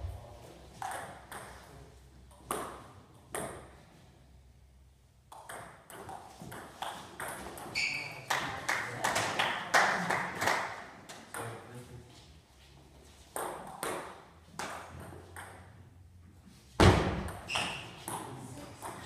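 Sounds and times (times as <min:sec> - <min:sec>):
table tennis ball hits: 0:00.8 - 0:01.6, 0:02.4 - 0:03.7, 0:05.3 - 0:07.8, 0:13.3 - 0:15.8, 0:16.8 - 0:19.0
high squeak: 0:07.8 - 0:08.2, 0:17.5 - 0:18.0.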